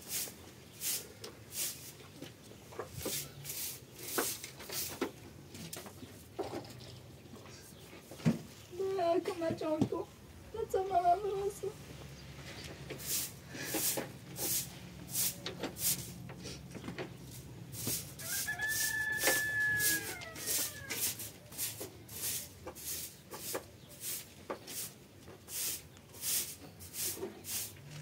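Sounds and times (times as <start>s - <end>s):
rooster crowing: 18.2s - 21.2s.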